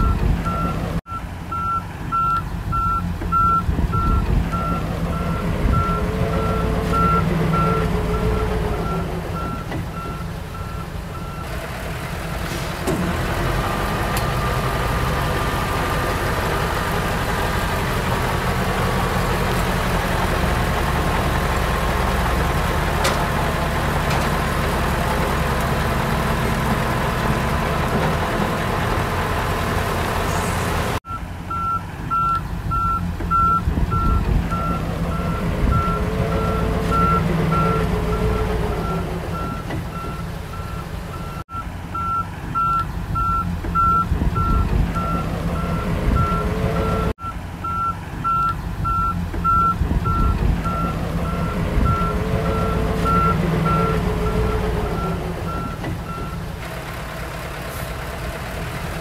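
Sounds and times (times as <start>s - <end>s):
reversing alarm beeping: 0.0s - 11.4s, 30.3s - 56.4s
heavy diesel engine under load: 0.0s - 59.0s.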